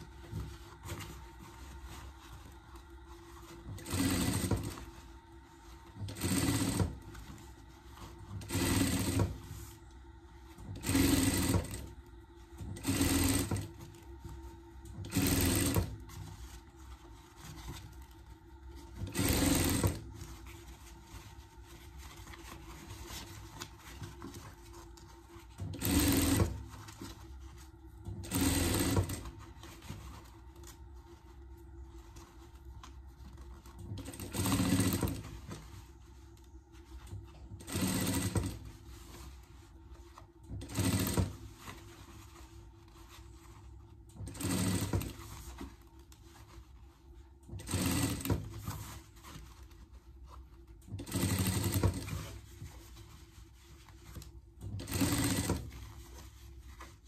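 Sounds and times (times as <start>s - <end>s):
sewing machine stitching: 3.2s - 9.8s, 10.5s - 12.0s, 12.6s - 18.1s, 18.8s - 27.2s, 28.0s - 30.7s, 33.4s - 36.2s, 36.9s - 45.8s, 47.4s - 49.6s, 50.8s - 56.9s.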